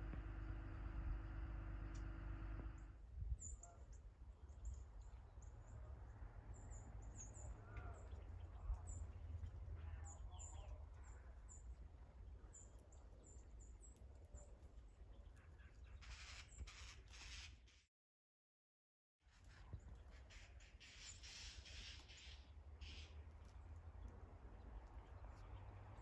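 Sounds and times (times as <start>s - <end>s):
low background rumble: 0.0s - 3.0s
songbirds chip calls: 19.4s - 26.0s.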